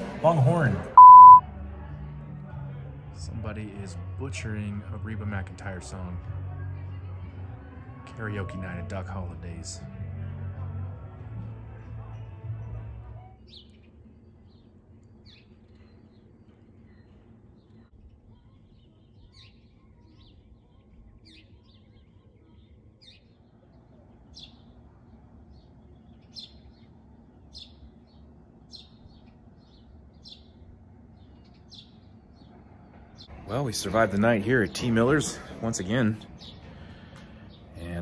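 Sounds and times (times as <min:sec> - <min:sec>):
small birds chirping: 0:12.6 - 0:38.0
voices: 0:17.6 - 0:28.5, 0:30.8 - 0:38.0.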